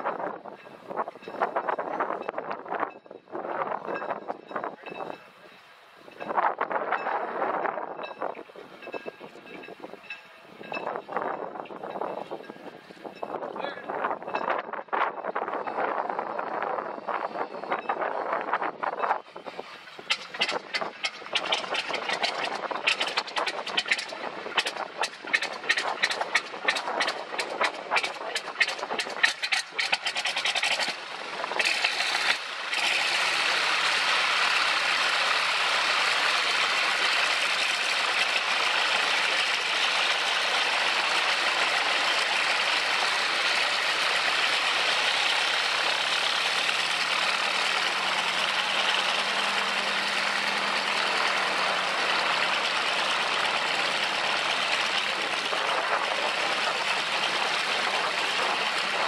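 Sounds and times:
aircraft piston engine starting: 16.4s - 59.0s.

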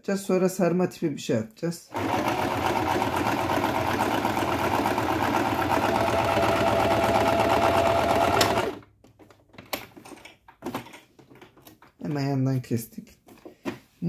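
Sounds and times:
sewing machine running: 1.9s - 8.8s.

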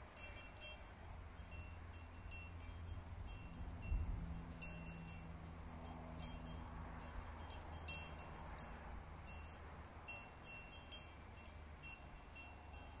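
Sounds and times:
soft chimes tinkling: 0.1s - 13.0s.

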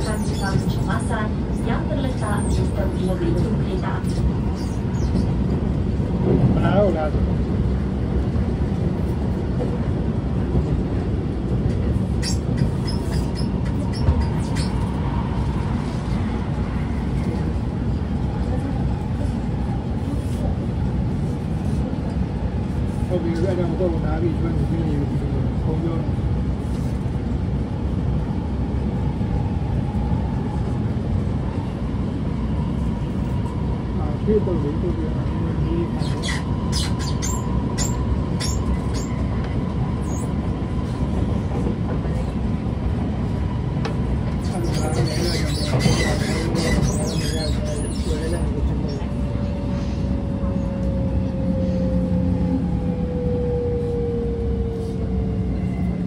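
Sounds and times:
train wheels rumbling on track: 0.0s - 56.0s
high squeaks from train gangway: 12.1s - 15.0s, 35.9s - 39.4s, 44.4s - 49.1s.

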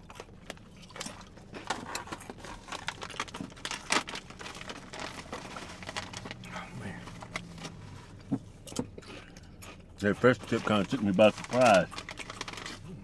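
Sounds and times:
foil chip bag crinkling: 0.0s - 6.5s, 10.2s - 13.0s
chips being chewed: 8.7s - 13.0s.

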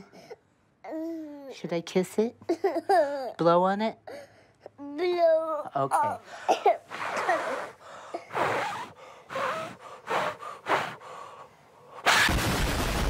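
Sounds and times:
man blowing short puffs: 6.8s - 12.3s.

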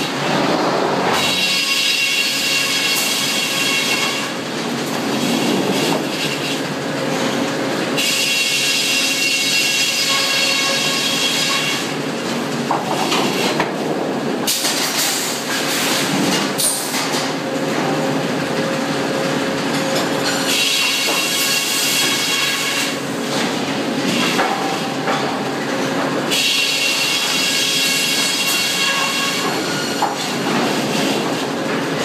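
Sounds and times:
circular saw cutting log: 1.1s - 4.4s, 8.0s - 12.0s, 26.3s - 30.2s.

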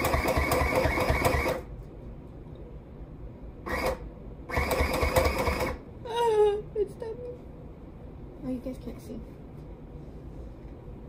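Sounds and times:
electric sewing machine stitching: 0.0s - 1.7s, 3.7s - 5.8s.

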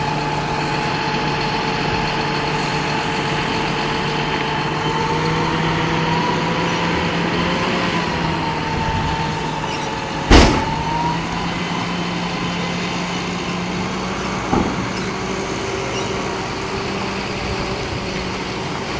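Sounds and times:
tractor diesel engine running: 0.0s - 18.9s
sharp bang: 10.3s - 11.0s.

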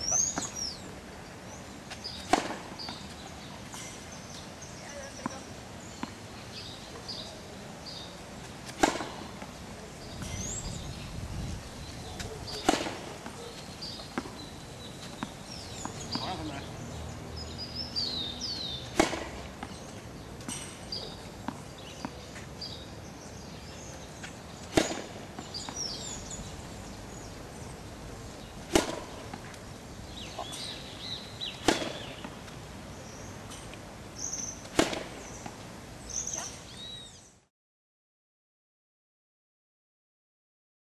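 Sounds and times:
birds chirping: 0.0s - 37.4s
tennis racket hitting ball: 2.0s - 3.4s, 8.6s - 9.5s, 12.5s - 17.5s, 18.7s - 22.2s, 24.3s - 27.3s, 28.4s - 32.4s, 34.6s - 35.6s.

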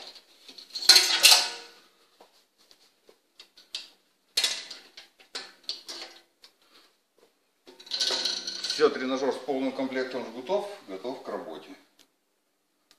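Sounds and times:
metal hooks clattering on steel frame: 0.0s - 1.8s, 7.7s - 9.1s.

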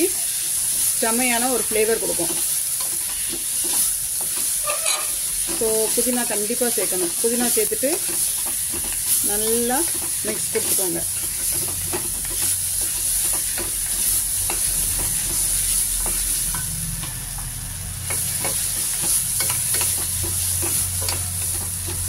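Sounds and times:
food sizzling in oil: 0.0s - 22.0s
wooden spatula scraping pot: 1.6s - 16.6s.

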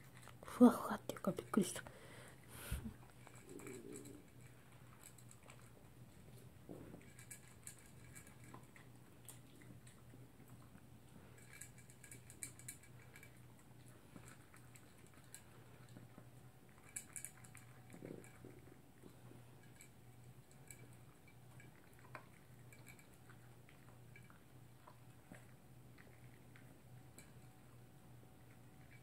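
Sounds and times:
dog crunching food: 0.0s - 0.5s, 2.9s - 29.0s.

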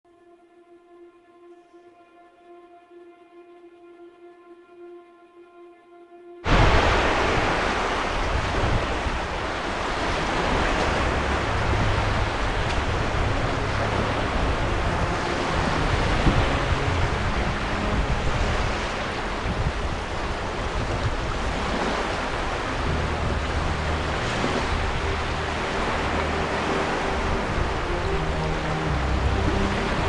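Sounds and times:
ocean waves on a beach: 6.4s - 30.0s.

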